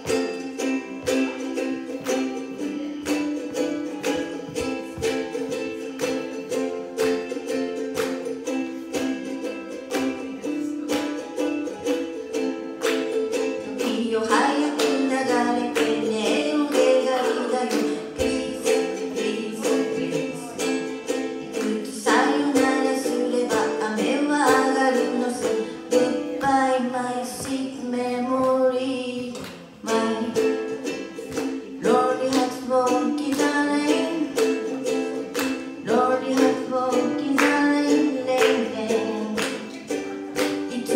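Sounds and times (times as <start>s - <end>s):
ukulele strumming: 0.0s - 40.9s
woman singing: 13.7s - 31.0s, 31.7s - 39.8s, 40.4s - 40.9s.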